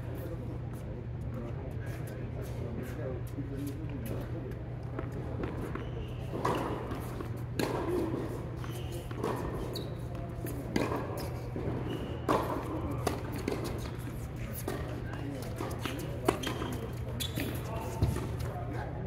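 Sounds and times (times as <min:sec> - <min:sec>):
tennis balls bouncing on hard court: 0:04.8 - 0:18.5
tennis balls hit by rackets: 0:04.8 - 0:18.5.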